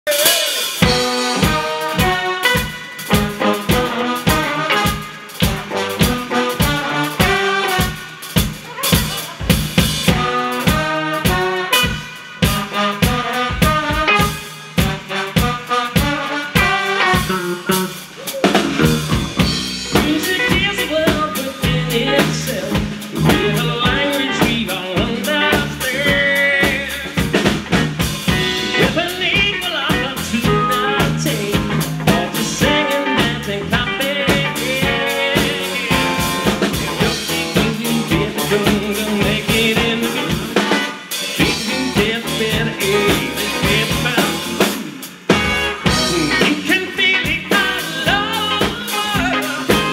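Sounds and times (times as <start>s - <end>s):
drum kit: 0.0s - 49.9s
man singing: 0.1s - 8.0s, 19.8s - 27.4s, 28.4s - 49.9s
electric guitar: 0.1s - 49.9s
electric bass: 0.8s - 15.7s, 16.6s - 40.8s, 41.4s - 49.9s.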